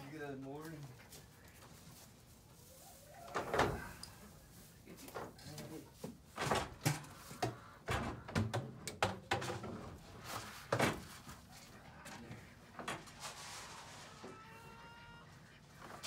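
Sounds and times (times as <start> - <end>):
plastic barrels knocking and clattering: 6.0 - 10.1, 10.7 - 11.2.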